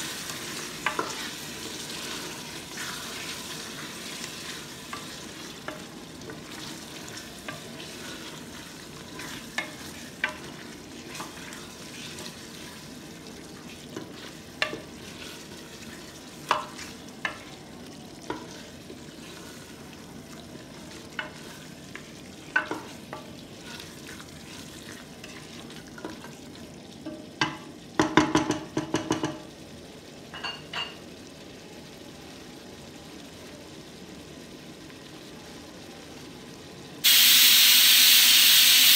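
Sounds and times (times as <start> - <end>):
low sizzle of frying: 0.0 - 38.9.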